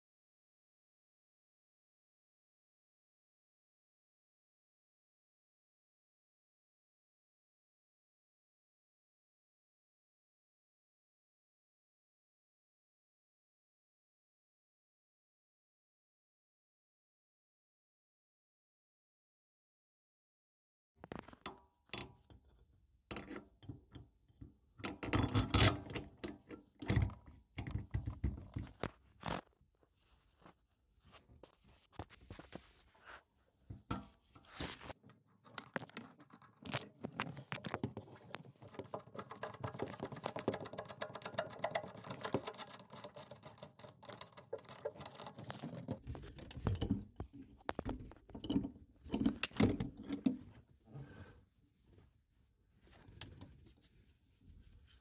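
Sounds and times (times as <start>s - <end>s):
wrench clicking and scraping on nut: 35.4s - 46.0s.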